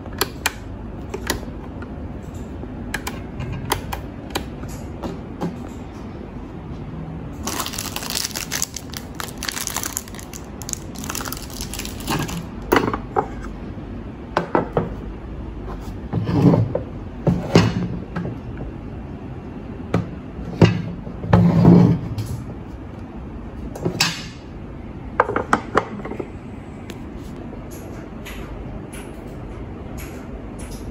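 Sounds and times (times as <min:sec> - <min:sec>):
crackly rustling: 0:07.4 - 0:12.7.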